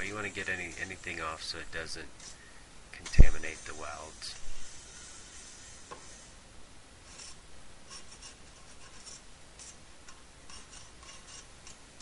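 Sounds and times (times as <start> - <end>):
hand file scraping copper: 0.0 - 6.3, 10.5 - 11.8.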